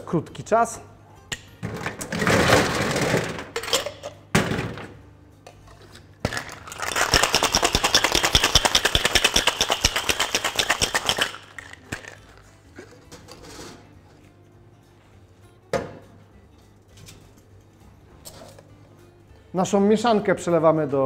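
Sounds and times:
ice rattling in cocktail shaker: 6.2s - 12.5s.

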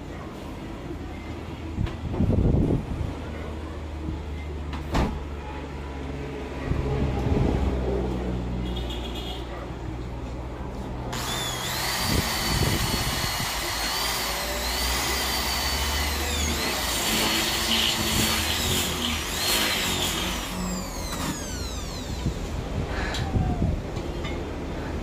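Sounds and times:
electric drill boring into metal: 11.1s - 22.6s.

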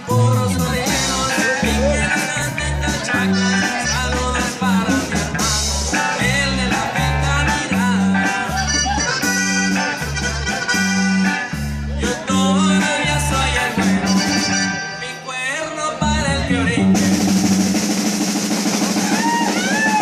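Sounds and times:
drum kit: 0.0s - 14.8s, 16.1s - 20.0s
button accordion melody: 0.0s - 15.2s
bass alternating notes: 0.0s - 20.0s.

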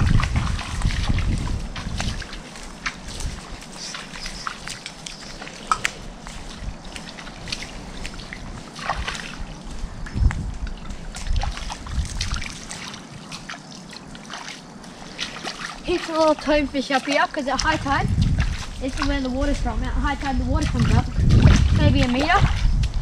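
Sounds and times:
bare feet wading through water: 0.0s - 23.0s
trickling water: 0.0s - 23.0s.

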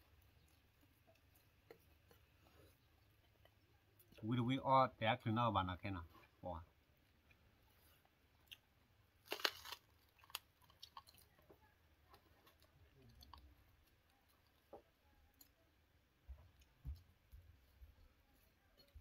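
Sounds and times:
chewing: 0.0s - 4.2s, 9.3s - 15.8s.

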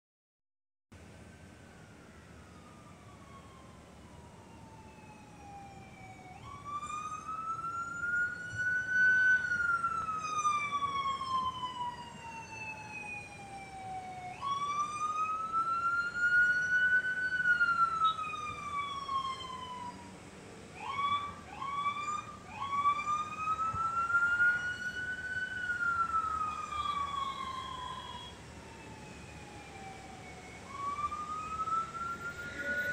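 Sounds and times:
emergency siren wailing: 1.1s - 32.9s
siren short whoops: 25.9s - 28.4s, 30.7s - 32.9s.

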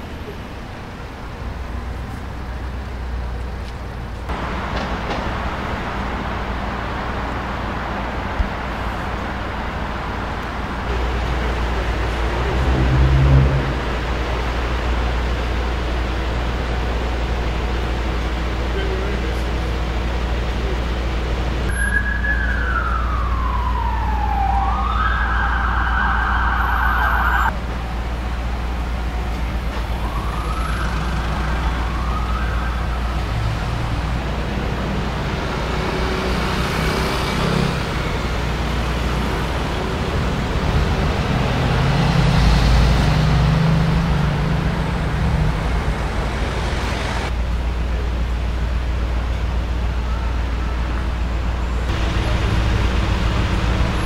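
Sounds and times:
city traffic: 0.0s - 54.0s
siren wailing: 21.7s - 27.5s, 29.9s - 33.3s.

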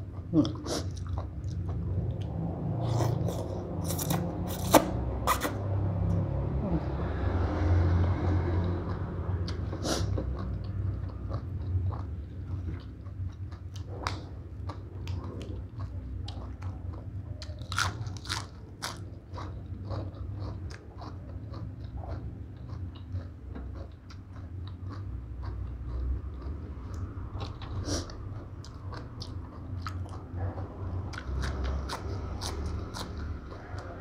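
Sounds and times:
close chewing and crunching: 0.0s - 5.6s, 8.1s - 34.0s
steady low hum: 0.0s - 34.0s.

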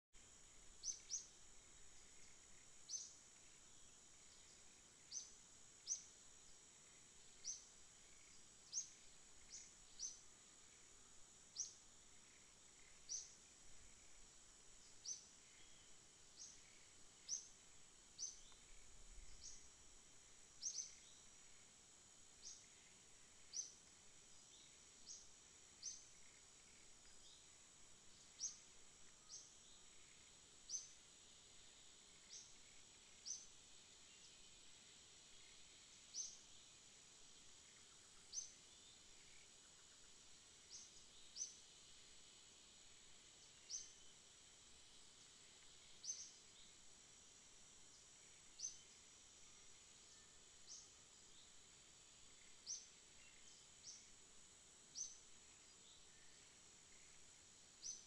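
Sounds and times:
faint high-pitched hiss: 0.0s - 58.0s
bird chirping: 0.7s - 6.2s, 6.8s - 10.9s, 11.5s - 19.8s, 20.6s - 21.7s, 22.4s - 31.0s, 57.8s - 58.0s.

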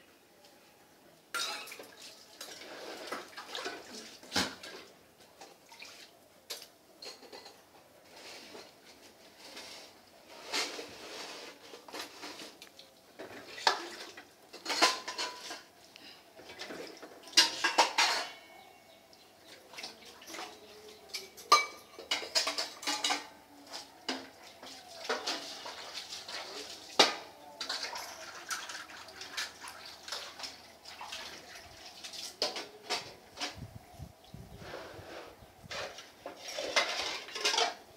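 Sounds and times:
clinks and clatters: 6.6s - 8.7s, 11.7s - 15.8s, 16.4s - 18.7s, 20.3s - 33.6s, 35.7s - 37.9s.

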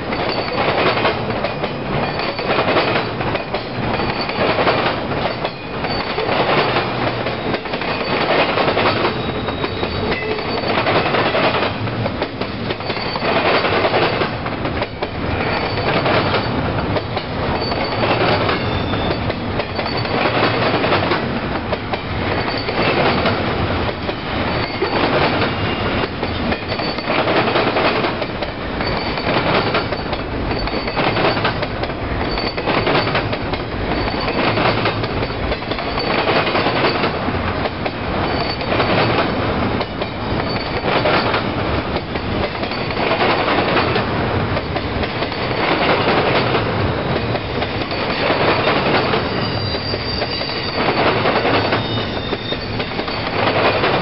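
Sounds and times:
train rumbling and rattling: 0.0s - 54.0s
high wheel squeals: 5.3s - 6.4s, 8.9s - 10.9s, 12.8s - 13.7s, 15.4s - 16.6s, 17.5s - 20.4s, 22.3s - 23.1s, 24.3s - 27.2s, 28.8s - 31.6s, 32.2s - 33.2s, 38.2s - 38.8s, 40.0s - 41.4s, 47.8s - 53.5s.

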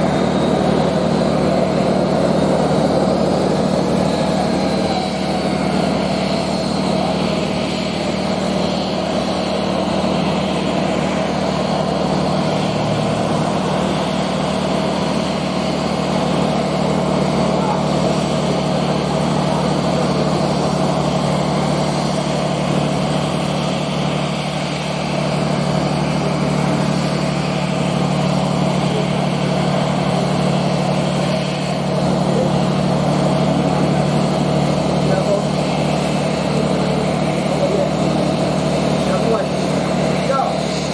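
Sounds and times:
jet engines idling hum: 0.0s - 40.9s.

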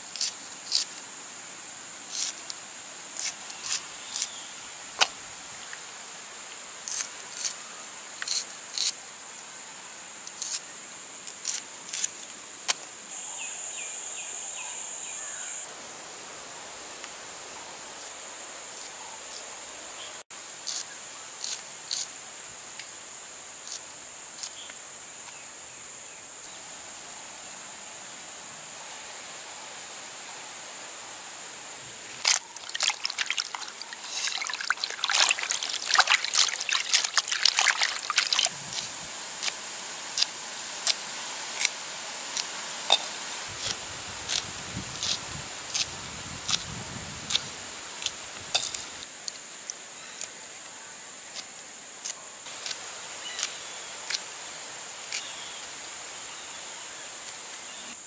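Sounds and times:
high insect drone: 0.0s - 58.0s
hands splashing in water: 32.2s - 38.9s.

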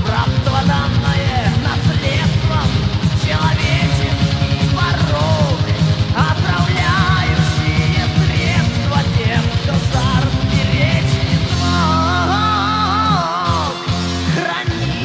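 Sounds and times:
bass guitar: 0.0s - 15.0s
fast drumming: 0.0s - 15.0s
wavering melodic lead guitar: 0.0s - 15.0s.

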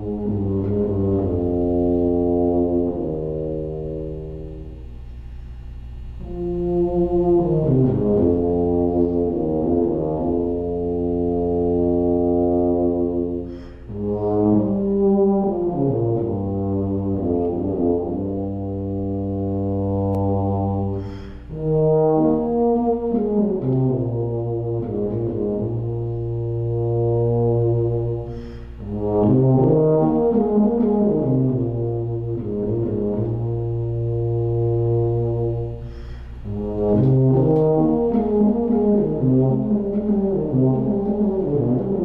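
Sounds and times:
tuba playing a slow melody: 0.0s - 42.0s
breaths between phrases: 13.5s - 13.9s, 21.0s - 21.5s, 28.3s - 28.8s.

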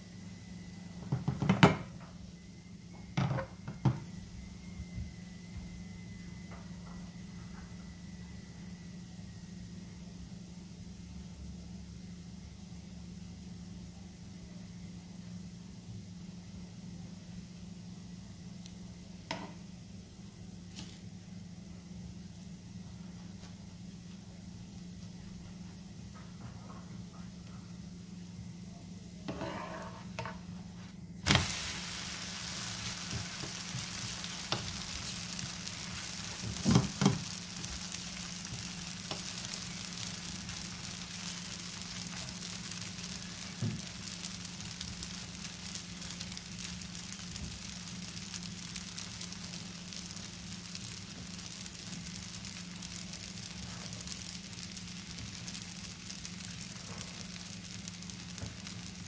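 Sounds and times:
crepe sizzling in frying pan: 31.2s - 59.0s
crepe slapping onto pan: 31.3s - 59.0s.

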